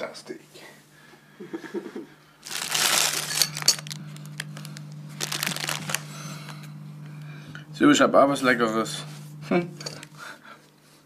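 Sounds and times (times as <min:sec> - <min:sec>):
low steady hum: 0:00.0 - 0:11.0
plastic bag crinkling: 0:02.4 - 0:06.7.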